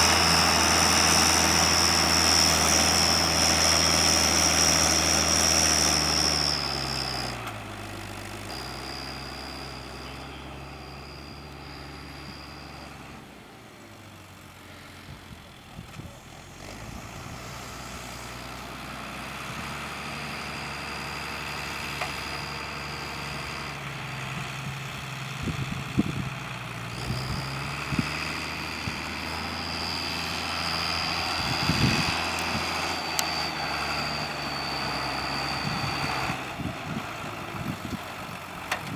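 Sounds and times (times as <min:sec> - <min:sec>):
high turbo whistle: 0:00.0 - 0:07.4, 0:08.4 - 0:13.3, 0:19.3 - 0:25.0, 0:26.9 - 0:38.0
tractor diesel engine: 0:00.0 - 0:38.9.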